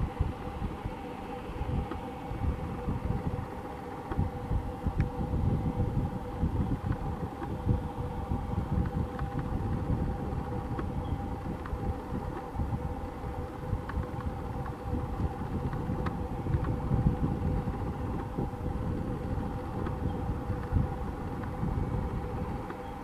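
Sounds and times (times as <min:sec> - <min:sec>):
two-note machinery hum: 0:00.0 - 0:23.0
wind buffeting microphone: 0:00.0 - 0:23.0.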